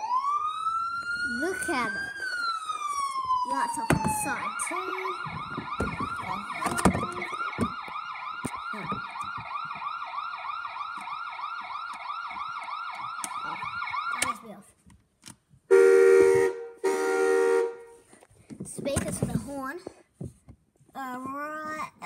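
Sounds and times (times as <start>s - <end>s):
toy siren wailing: 0.0s - 14.4s
toy horn honking: 15.7s - 18.0s.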